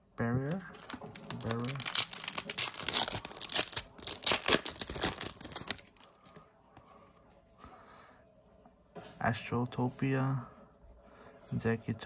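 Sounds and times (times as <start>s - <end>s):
foil wrapper tearing and crinkling: 0.7s - 6.2s.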